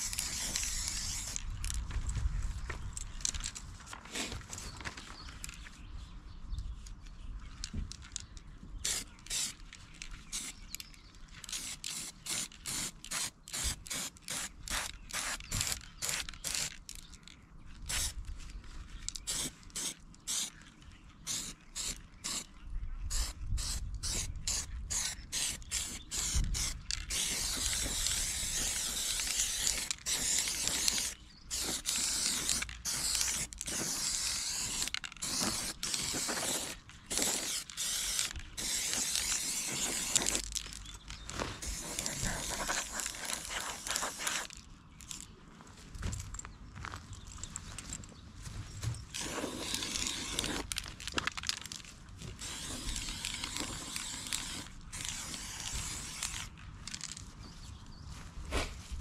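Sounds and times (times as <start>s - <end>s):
spray paint hissing: 0.0s - 1.4s, 8.8s - 9.6s, 10.3s - 10.8s, 11.4s - 16.8s, 17.9s - 18.2s, 19.2s - 20.5s, 21.2s - 22.5s, 23.1s - 40.5s, 41.6s - 44.6s, 49.2s - 50.8s, 52.4s - 56.5s
spray can ball rattling: 0.0s - 1.8s, 8.8s - 9.6s, 10.3s - 17.0s, 19.0s - 20.5s, 23.1s - 41.0s, 41.6s - 45.2s, 49.2s - 57.2s.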